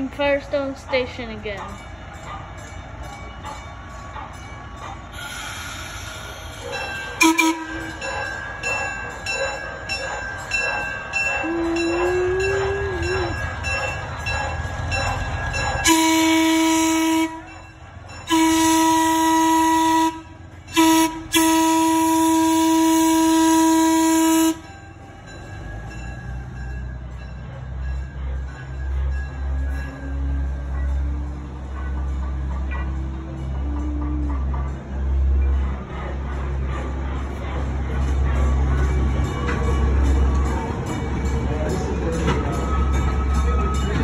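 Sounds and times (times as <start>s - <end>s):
diesel locomotive rumbling: 0.0s - 44.0s
locomotive horn blasts: 7.2s - 8.0s, 15.8s - 17.6s, 18.3s - 24.7s.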